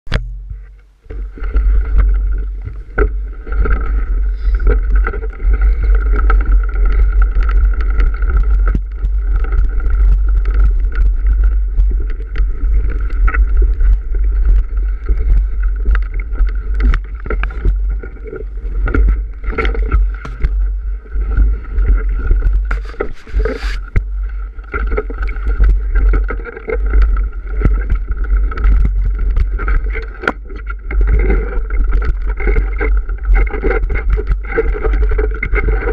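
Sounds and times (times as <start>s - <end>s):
tyre rumble: 0.1s - 35.9s
bike knocks and rattles: 18.8s - 20.7s, 21.3s - 24.1s.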